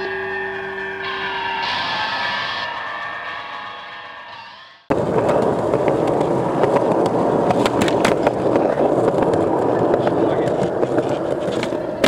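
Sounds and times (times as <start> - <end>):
music: 0.0 - 4.9
skateboard wheels rolling on concrete: 4.9 - 12.0.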